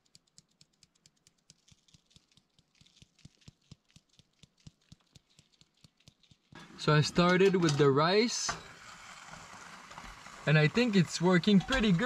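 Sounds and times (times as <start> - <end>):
spice jar shaking clicks: 0.0 - 6.6.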